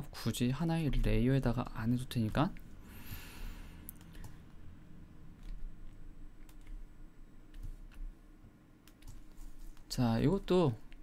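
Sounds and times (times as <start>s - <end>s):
low steady hum: 0.0s - 11.0s
keyboard and mouse clicks: 3.9s - 4.4s, 5.4s - 6.9s, 7.5s - 8.1s, 8.8s - 9.9s.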